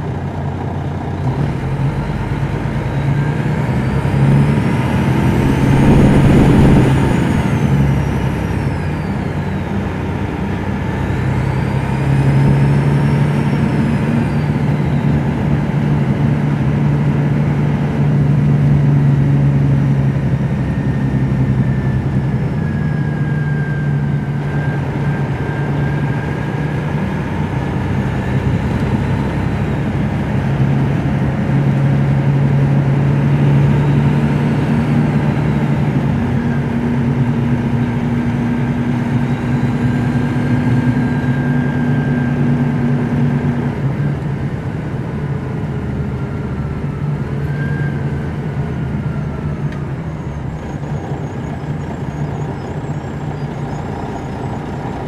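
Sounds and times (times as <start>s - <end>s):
bus engine drone: 0.0s - 55.0s
faint high whines: 4.9s - 9.7s.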